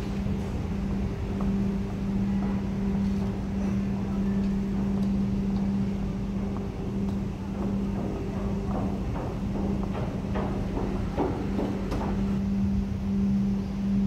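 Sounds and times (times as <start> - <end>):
train equipment humming: 0.0 - 14.0.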